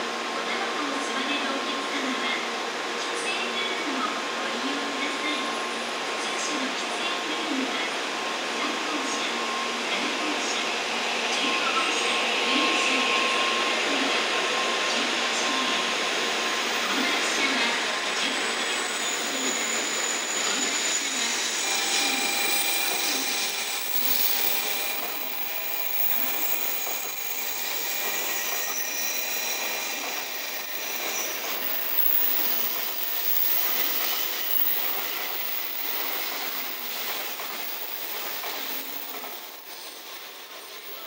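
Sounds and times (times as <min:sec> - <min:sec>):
train rolling past: 0:08.6 - 0:41.0.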